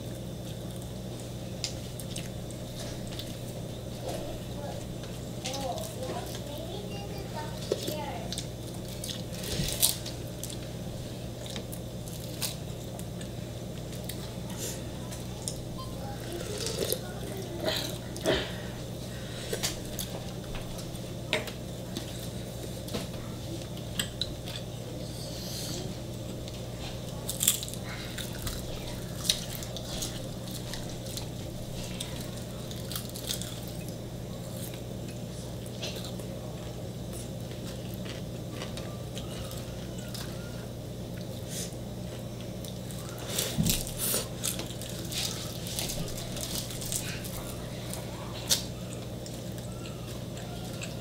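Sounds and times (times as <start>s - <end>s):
steady low hum: 0.0s - 51.0s
chewing: 0.4s - 6.6s, 7.5s - 10.7s, 11.4s - 51.0s
crisp bites: 27.2s - 31.3s, 42.6s - 49.7s.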